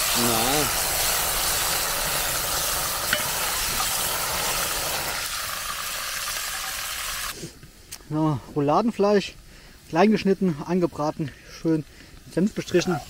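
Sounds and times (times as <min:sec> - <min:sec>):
meat sizzling in a pan: 0:00.0 - 0:07.4.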